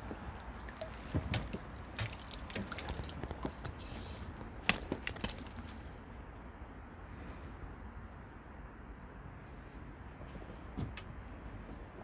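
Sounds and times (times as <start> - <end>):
water splashing and dripping: 0.0 - 3.8.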